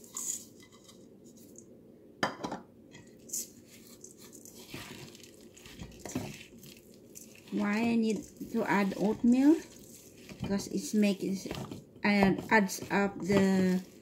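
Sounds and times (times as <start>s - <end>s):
spoon scraping and rustling: 0.0s - 1.6s, 3.0s - 14.0s.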